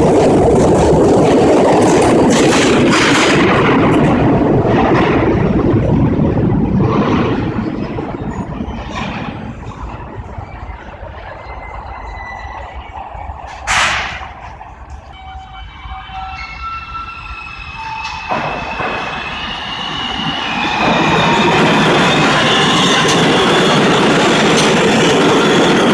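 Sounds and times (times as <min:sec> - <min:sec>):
train rumble: 0:00.0 - 0:25.9
wheel squeal: 0:10.3 - 0:25.9.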